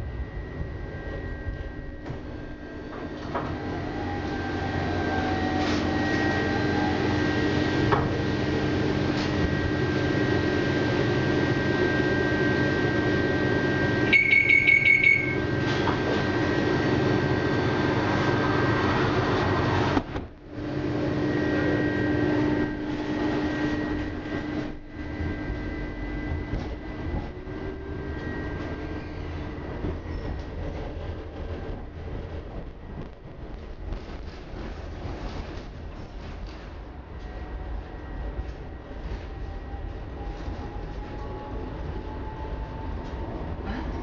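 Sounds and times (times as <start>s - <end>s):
tram running drone and whine: 0.0s - 44.0s
door warning beeps: 14.1s - 15.5s.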